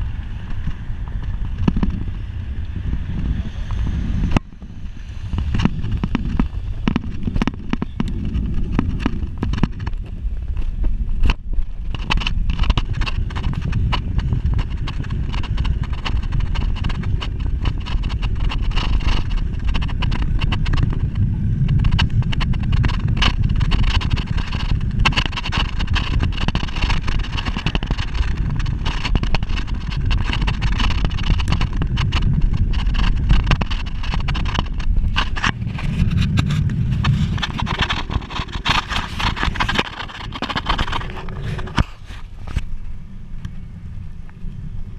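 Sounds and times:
bicycle clicks and rattles: 0.0s - 2.7s, 4.3s - 44.9s
wind rushing over microphone: 0.0s - 44.9s.

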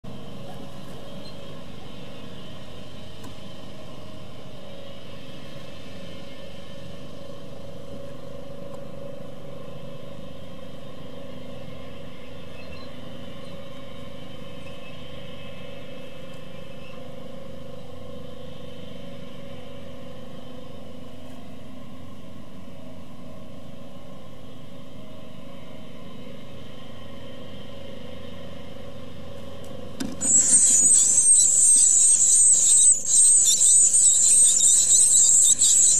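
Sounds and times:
steady low hum: 28.2s - 35.9s
faint steady tones: 30.2s - 35.9s
nestlings begging calls: 30.2s - 35.9s.

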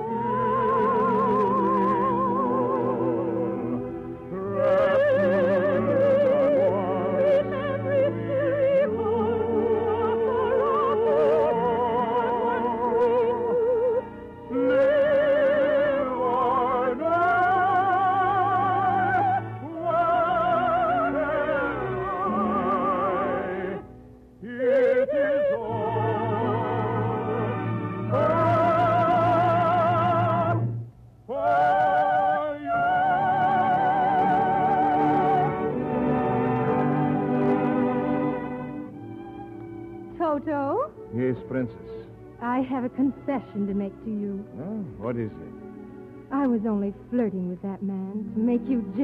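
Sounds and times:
orchestral accompaniment: 0.0s - 49.0s
high voice singing with vibrato: 19.8s - 23.8s.

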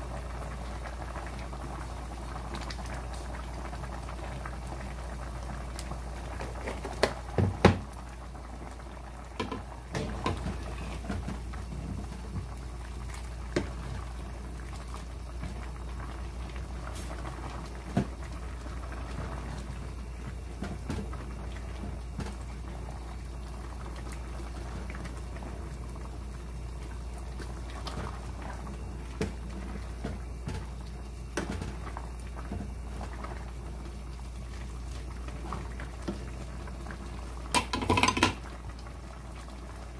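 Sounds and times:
stew bubbling in a pot: 0.0s - 39.9s
ladle knocking against pot: 9.4s - 10.4s, 37.6s - 38.4s.

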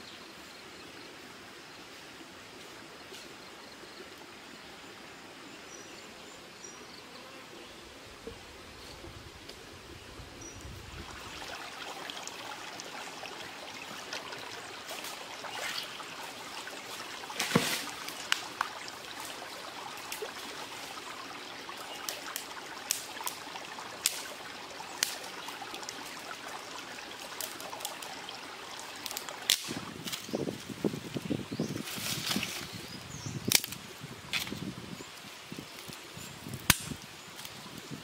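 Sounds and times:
running water trickling: 8.2s - 33.6s
twigs cracking on stones: 17.2s - 18.8s, 29.0s - 30.4s, 33.5s - 34.7s, 36.6s - 37.6s.

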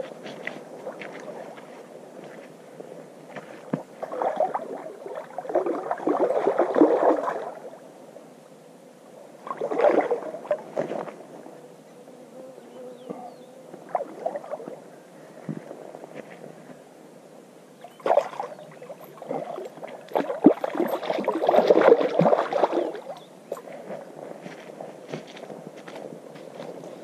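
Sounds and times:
water splashing and sloshing: 3.3s - 7.8s, 9.4s - 11.3s, 13.8s - 14.8s, 17.8s - 24.2s.

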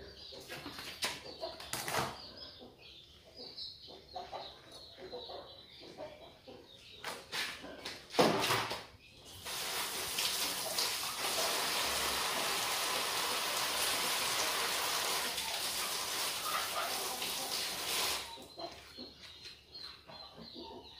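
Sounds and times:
running water: 9.4s - 18.3s.

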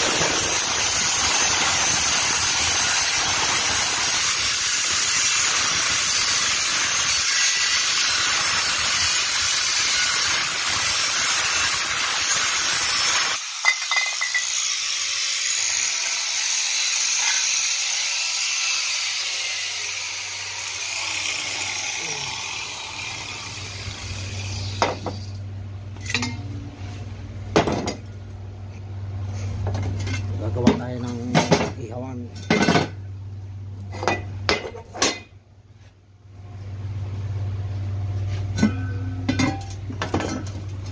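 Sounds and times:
angle grinder cutting steel: 0.0s - 25.4s.

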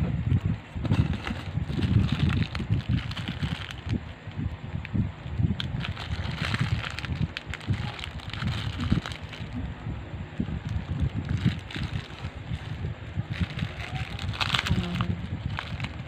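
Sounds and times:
plastic bag crinkling: 0.9s - 4.0s, 5.6s - 9.6s, 10.6s - 16.0s.

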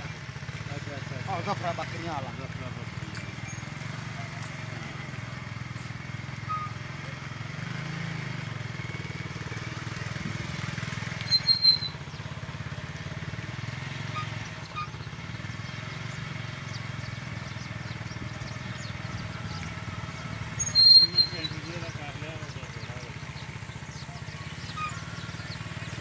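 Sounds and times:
motorcycle engine running: 0.0s - 26.0s
high-pitched chirps: 11.3s - 12.0s.

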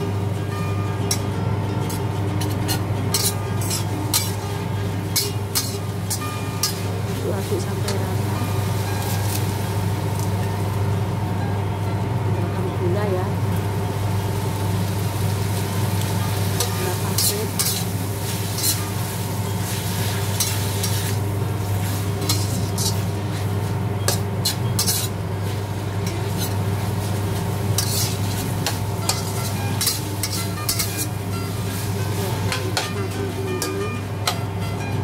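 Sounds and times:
spatula scraping wok: 1.9s - 10.3s, 16.3s - 34.4s
meat sizzling: 3.1s - 11.0s, 13.5s - 33.6s.

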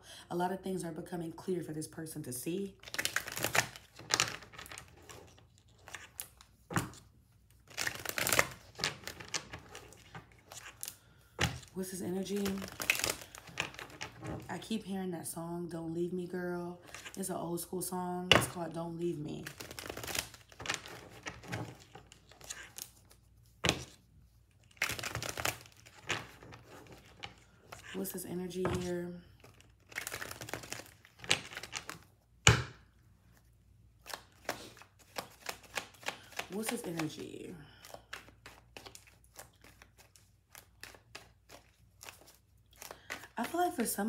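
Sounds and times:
cards being shuffled: 2.8s - 14.5s, 19.4s - 32.6s, 33.3s - 44.0s
cards riffling: 7.6s - 11.7s, 19.5s - 28.0s, 29.4s - 32.1s, 34.0s - 37.2s, 37.8s - 43.4s.

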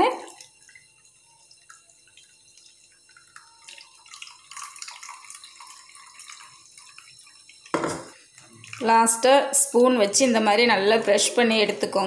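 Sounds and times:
juice splashing and dripping: 0.0s - 9.3s.

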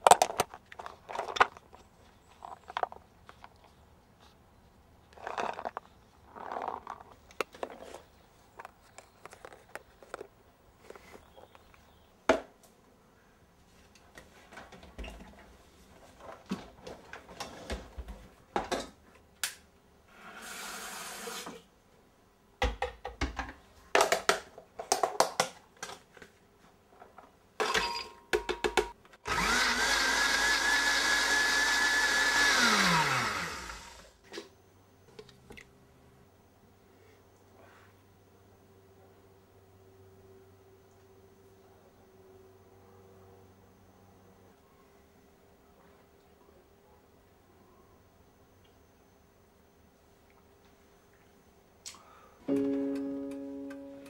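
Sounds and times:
plastic tubs clicking and knocking: 22.6s - 26.4s, 27.6s - 29.0s
countertop blender running: 29.3s - 34.1s.

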